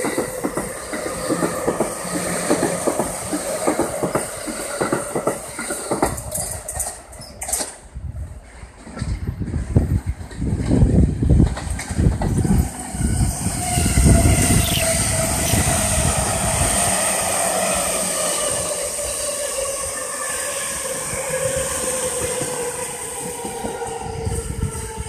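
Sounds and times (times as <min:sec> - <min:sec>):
train wheels rumbling over joints: 0:00.0 - 0:25.0
train motor whine: 0:12.2 - 0:25.0.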